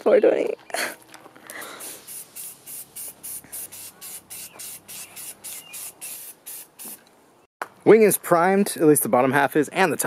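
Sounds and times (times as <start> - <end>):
spray paint hissing bursts: 1.7 - 7.0.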